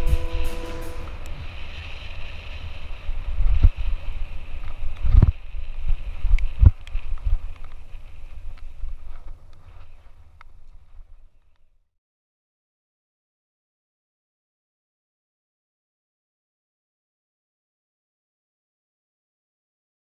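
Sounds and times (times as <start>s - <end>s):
wind buffeting microphone: 0.0s - 11.4s.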